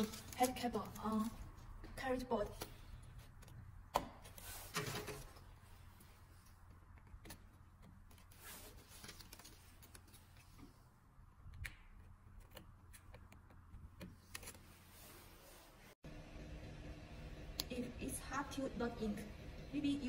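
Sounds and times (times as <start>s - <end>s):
ribbon cables clicking and rustling: 0.0s - 1.4s
low steady hum: 16.0s - 20.0s.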